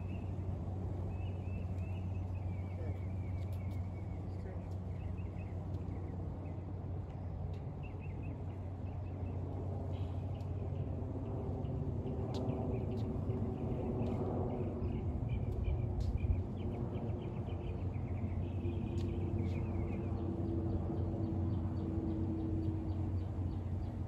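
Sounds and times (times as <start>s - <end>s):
steady low rumble: 0.0s - 24.0s
small birds chirping: 1.1s - 10.9s.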